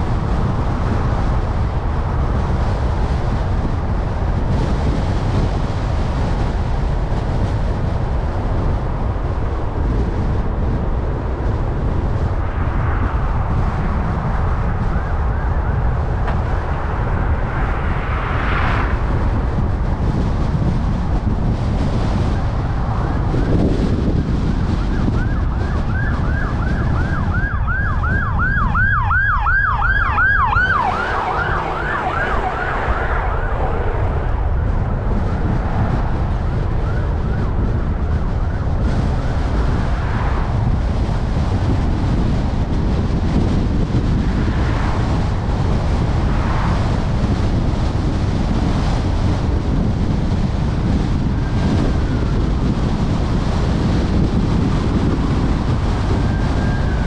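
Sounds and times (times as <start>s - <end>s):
car road rumble: 0.0s - 57.0s
emergency siren yelping: 24.8s - 34.4s.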